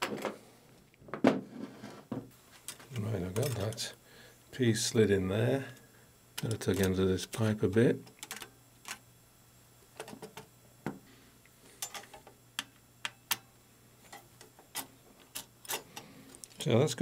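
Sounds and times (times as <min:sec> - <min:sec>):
small metal parts clicking: 0:08.1 - 0:09.0, 0:11.8 - 0:13.4, 0:14.1 - 0:16.6.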